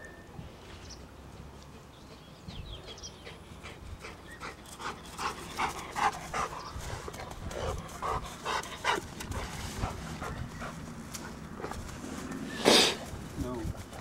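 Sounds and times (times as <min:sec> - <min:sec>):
dog panting: 0:01.7 - 0:12.0.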